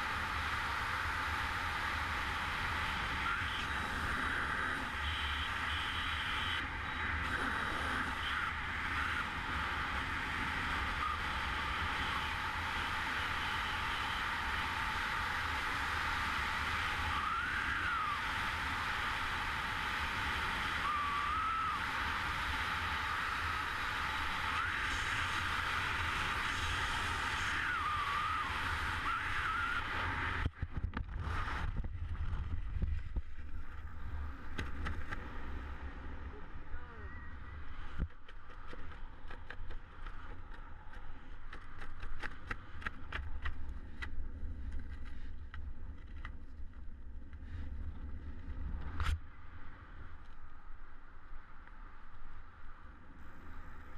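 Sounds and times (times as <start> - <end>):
freefall airflow rushing: 7.2 - 30.4
faint wavering whistles: 10.8 - 12.6, 16.8 - 19.5, 20.4 - 30.4.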